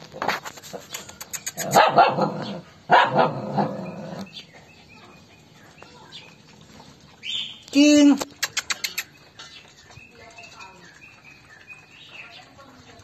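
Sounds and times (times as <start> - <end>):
small dogs barking and growling: 0.7 - 4.5.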